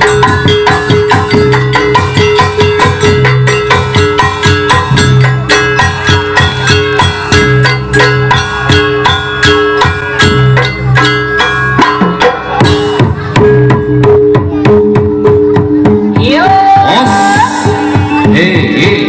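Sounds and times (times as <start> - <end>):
sliding melodic line: 0.0 - 16.3
drum and gong strikes: 0.0 - 19.0.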